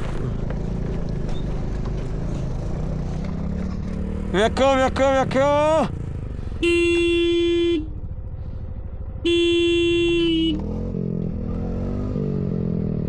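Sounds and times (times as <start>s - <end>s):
motorcycle engine revving: 0.0s - 13.0s
vehicle horn honking: 6.5s - 8.0s, 9.2s - 10.7s.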